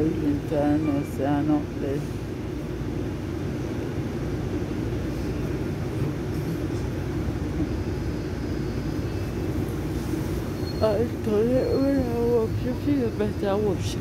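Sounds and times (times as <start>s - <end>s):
vehicle rumble inside cabin: 0.0s - 14.0s.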